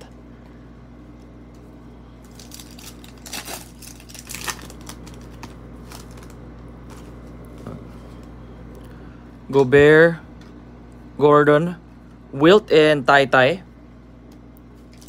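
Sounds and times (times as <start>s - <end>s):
foil wrapper crinkling and tearing: 2.2s - 7.3s, 14.8s - 15.0s.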